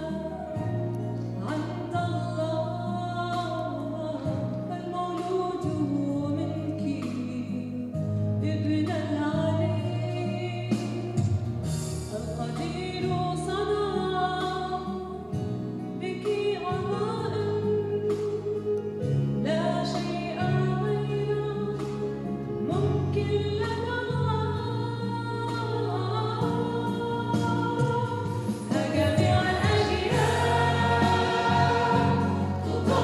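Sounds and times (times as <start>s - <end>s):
instrumental accompaniment: 26.4s - 33.0s
choir singing: 28.7s - 33.0s.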